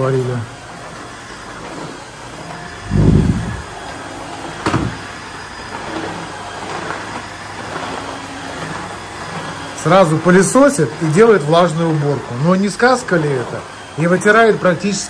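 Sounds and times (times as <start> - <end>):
wet and dry vacuum running: 0.0 - 15.0
heavy low thump: 2.9 - 3.7.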